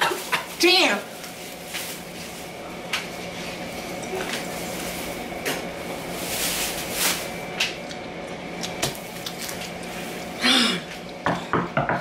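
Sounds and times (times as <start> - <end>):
closed-mouth hum falling in pitch: 2.5 - 11.9
wet chewing of gum: 7.6 - 11.2.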